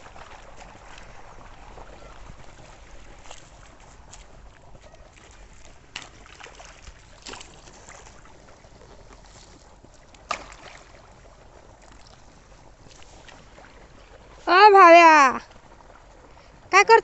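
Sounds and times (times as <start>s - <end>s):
running water: 0.0s - 17.0s
hoe chopping into wet mud: 10.3s - 10.8s.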